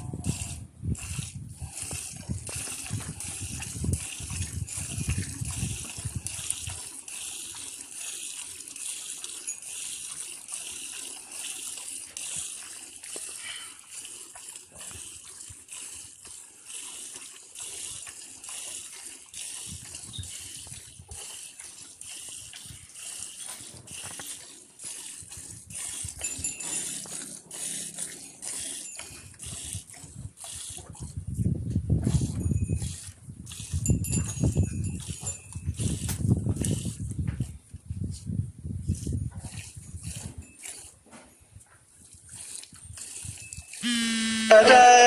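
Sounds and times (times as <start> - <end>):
milk squirting into pot: 0.2 - 31.3.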